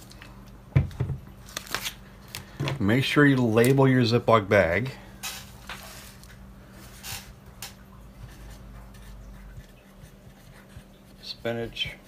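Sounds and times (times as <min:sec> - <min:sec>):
plastic bag clicks and crinkles: 0:01.4 - 0:02.7
marker writing on plastic: 0:08.9 - 0:12.0.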